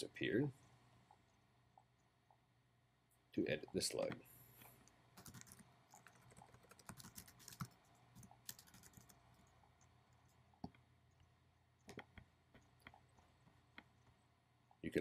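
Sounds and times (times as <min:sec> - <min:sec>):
computer keyboard typing: 0:05.2 - 0:09.5.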